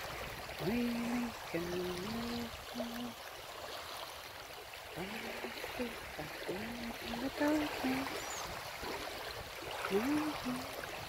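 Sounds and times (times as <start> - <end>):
rain and wind on microphone: 0.0 - 11.0
person humming: 0.6 - 3.2, 5.0 - 8.1, 9.9 - 10.8.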